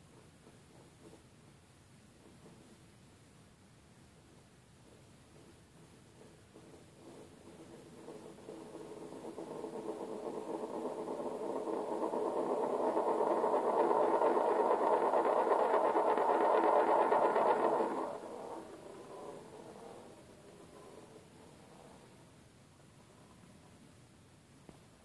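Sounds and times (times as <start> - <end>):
spinning top rattling on board: 6.5 - 22.0.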